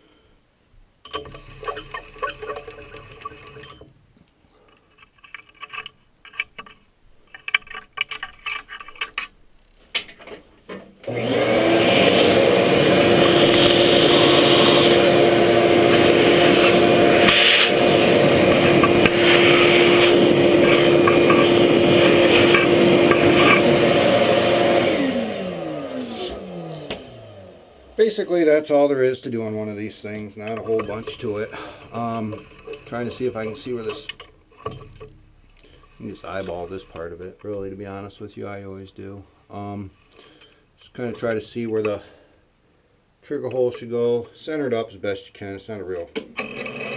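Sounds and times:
mill spindle motor humming: 0:11.0 - 0:28.0.

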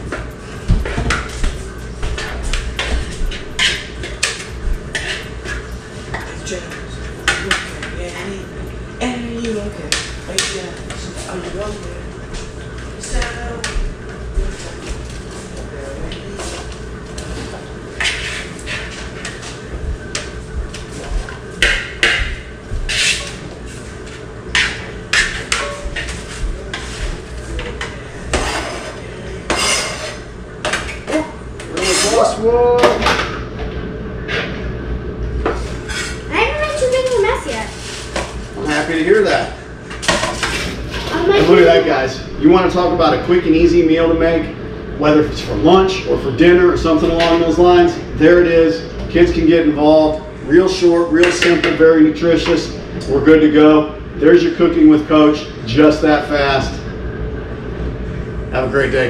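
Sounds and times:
spoon stirring in bowl: 0:00.8 - 0:08.0
knife scraping board: 0:18.0 - 0:20.2, 0:22.8 - 0:23.6, 0:28.3 - 0:30.2, 0:31.7 - 0:32.3, 0:35.5 - 0:36.2.

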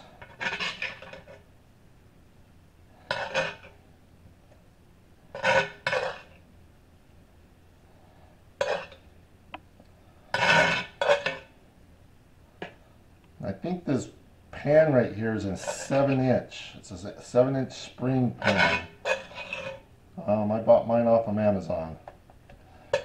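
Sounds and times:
metal spoon scraping a pan: 0:00.0 - 0:01.4, 0:03.0 - 0:03.8, 0:05.3 - 0:06.4, 0:08.6 - 0:09.1, 0:10.3 - 0:11.5, 0:15.4 - 0:19.9.

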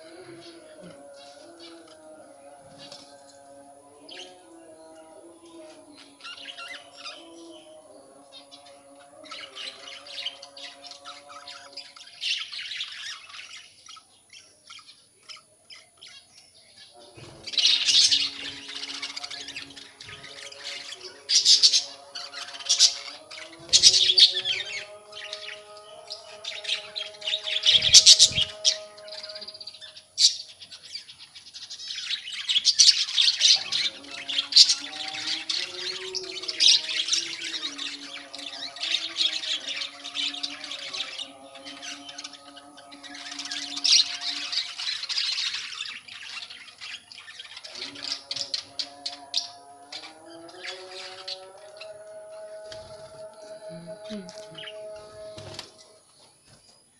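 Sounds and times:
budgerigars chattering and squawking: 0:08.5 - 0:52.0.

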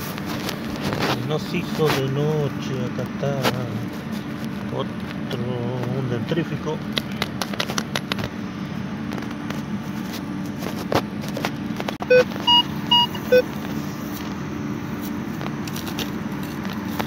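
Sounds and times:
digging in soil: 0:00.0 - 0:04.4
steady low hum: 0:00.0 - 0:17.0
metal detector beeps: 0:12.0 - 0:13.5.

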